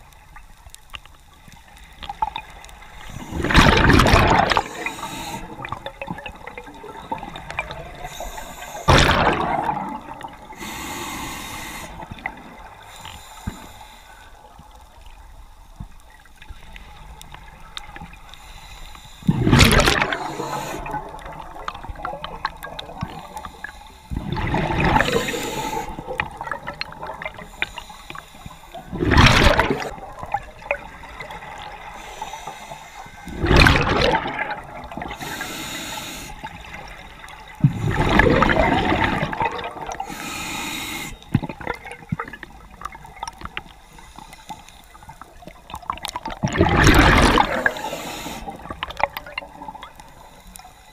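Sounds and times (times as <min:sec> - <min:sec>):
exhaled bubbles rushing underwater: 0:02.0 - 0:12.8, 0:19.2 - 0:27.9, 0:28.7 - 0:32.4, 0:33.1 - 0:35.4, 0:36.4 - 0:40.2, 0:41.3 - 0:43.8, 0:45.1 - 0:50.3
regulator hiss: 0:04.5 - 0:05.8, 0:07.2 - 0:08.9, 0:10.4 - 0:14.5, 0:18.2 - 0:19.4, 0:20.0 - 0:21.4, 0:24.9 - 0:26.2, 0:27.3 - 0:28.9, 0:31.4 - 0:33.3, 0:35.1 - 0:37.0, 0:40.0 - 0:41.4, 0:47.5 - 0:48.7.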